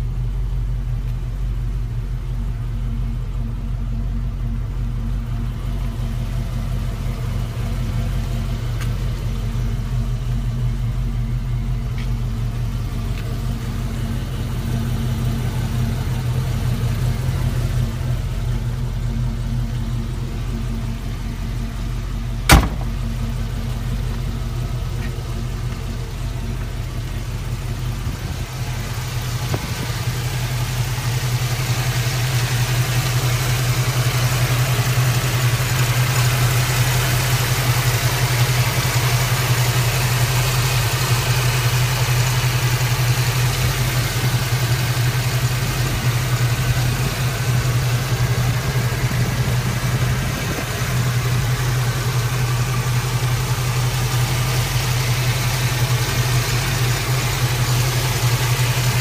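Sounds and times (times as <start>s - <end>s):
car engine idling: 0.0s - 59.0s
sharp knock: 22.5s - 23.2s.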